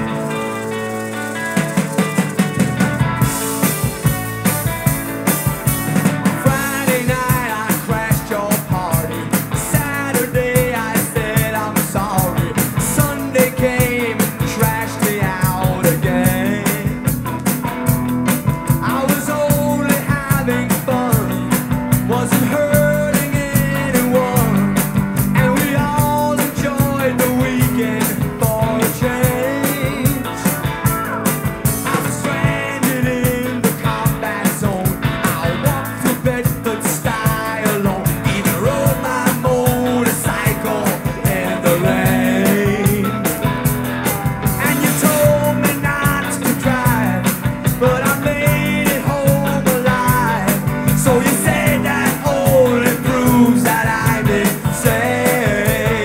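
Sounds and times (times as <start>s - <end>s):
rock song from vinyl record: 0.0s - 56.0s.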